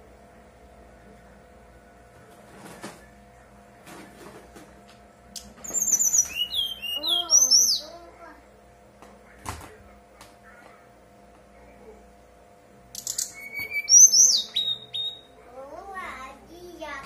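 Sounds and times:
bird singing fluty whistles: 5.7s - 7.8s, 13.0s - 15.3s.

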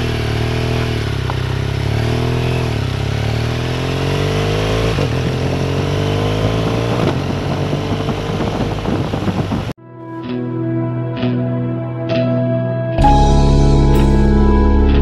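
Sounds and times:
motorcycle engine accelerating: 0.0s - 9.8s.

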